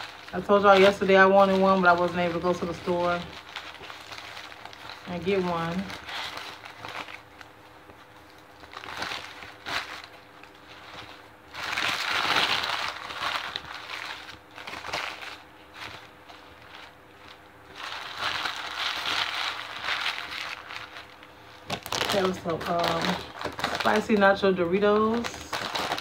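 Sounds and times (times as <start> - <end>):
paper wrapper crinkling: 0.0 - 26.0.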